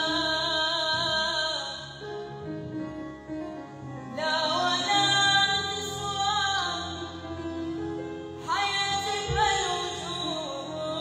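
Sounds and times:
woman singing: 0:00.0 - 0:02.2, 0:04.1 - 0:07.6, 0:08.3 - 0:11.0
instrumental backing music: 0:00.0 - 0:11.0.

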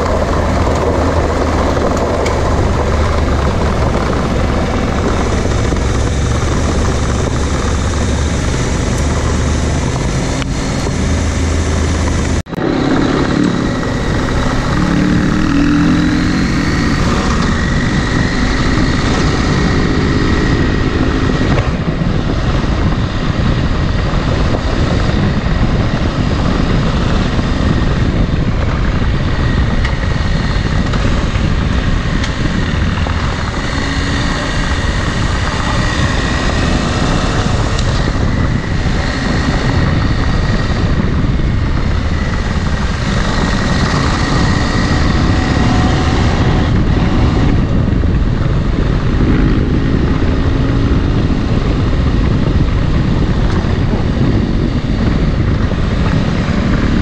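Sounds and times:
motorcycle engine running: 0:00.0 - 0:57.0
steady rushing noise: 0:00.0 - 0:57.0.

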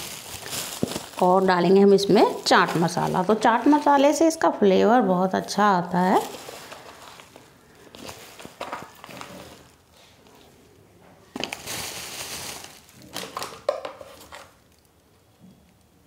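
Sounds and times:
spice packet crinkling: 0:00.0 - 0:04.4, 0:05.4 - 0:09.8, 0:11.4 - 0:14.9.

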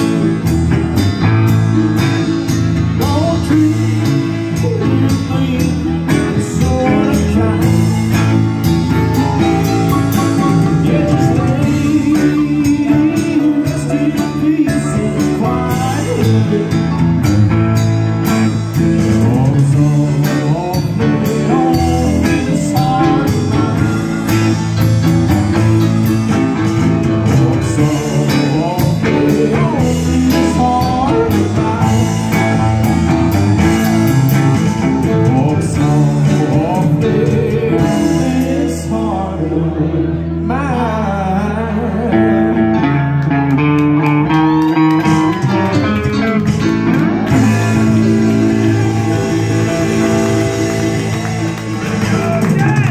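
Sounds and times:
live rock band playing: 0:00.0 - 0:52.9.

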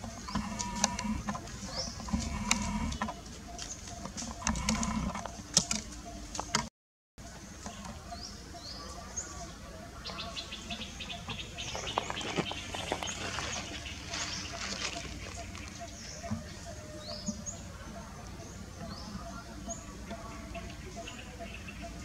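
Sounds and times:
small birds chirping: 0:00.0 - 0:22.0
footsteps on dry leaves and gravel: 0:11.6 - 0:16.2.

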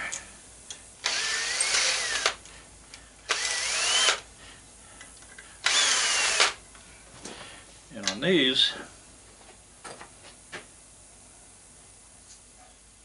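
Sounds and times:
cordless drill whining: 0:01.0 - 0:02.4, 0:03.3 - 0:04.2, 0:05.6 - 0:06.6.

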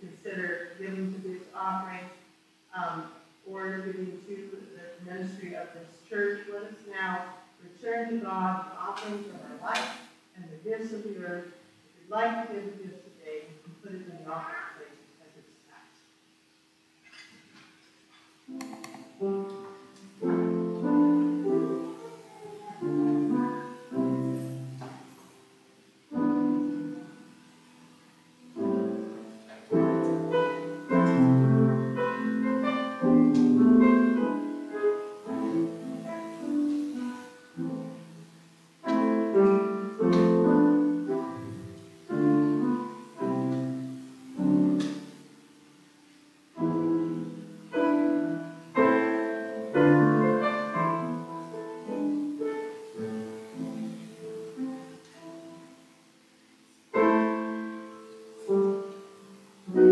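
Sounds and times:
grand piano slow piece: 0:18.1 - 0:59.9.

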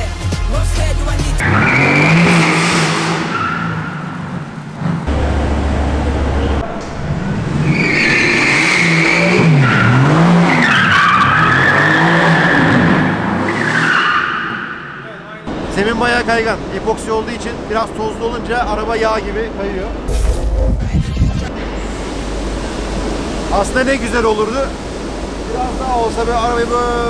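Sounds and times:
car engine revving: 0:01.4 - 0:14.6.

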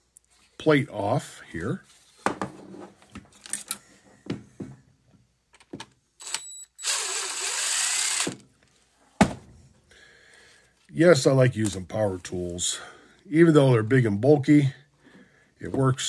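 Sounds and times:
cordless drill whirring: 0:06.2 - 0:08.4.

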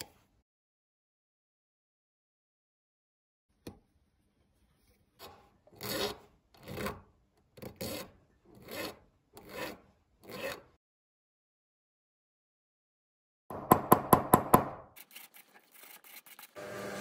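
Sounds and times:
hand file rasping on metal: 0:05.7 - 0:07.0, 0:07.6 - 0:10.8.

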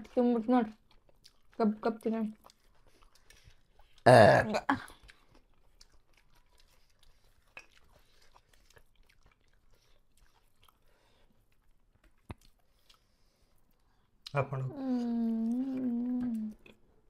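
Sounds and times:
faint chewing: 0:00.0 - 0:17.0.

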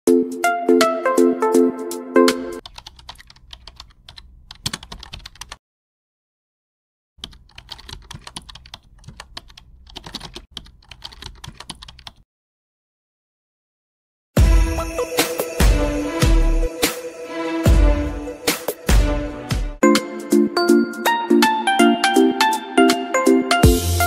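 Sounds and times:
computer keyboard typing: 0:02.6 - 0:05.6, 0:07.2 - 0:12.2
chiming musical notes: 0:14.5 - 0:18.5.

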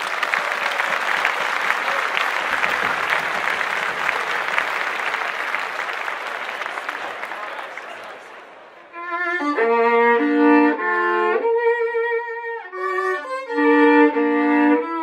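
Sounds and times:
crowd applause: 0:00.0 - 0:09.0.

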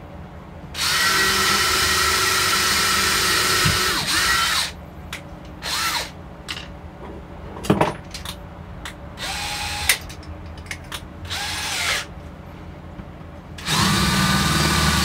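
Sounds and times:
cordless drill driving screws: 0:00.8 - 0:04.8, 0:09.2 - 0:09.9, 0:11.3 - 0:12.1, 0:13.6 - 0:15.0.

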